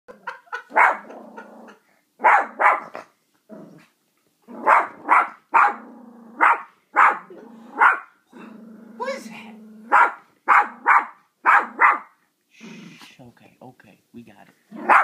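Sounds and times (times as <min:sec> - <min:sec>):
puppy barking: 0:00.6 - 0:01.2, 0:02.2 - 0:03.0, 0:04.6 - 0:05.8, 0:06.4 - 0:08.2, 0:09.9 - 0:12.2, 0:14.8 - 0:15.0
puppy growling low: 0:01.0 - 0:01.8, 0:03.5 - 0:03.9, 0:05.7 - 0:06.4, 0:07.2 - 0:10.0.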